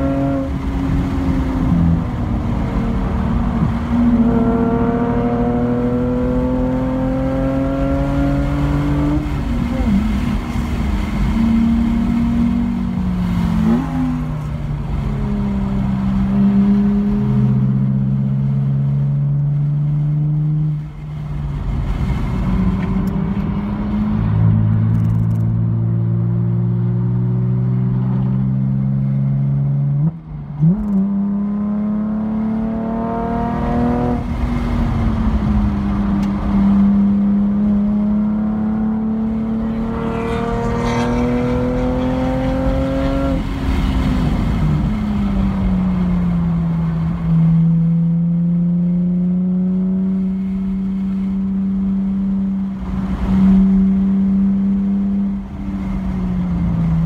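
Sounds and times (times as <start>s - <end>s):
car engine revving and shifting: 0.0s - 57.0s.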